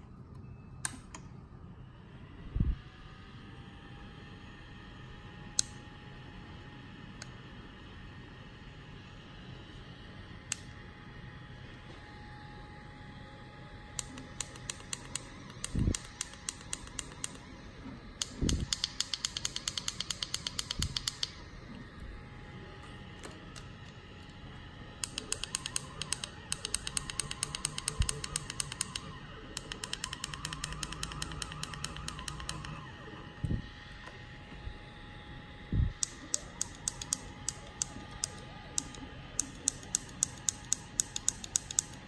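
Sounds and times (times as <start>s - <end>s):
faint steady whine: 0.0s - 42.0s
stepper motors ticking: 13.9s - 21.4s, 23.5s - 34.2s, 35.9s - 42.0s.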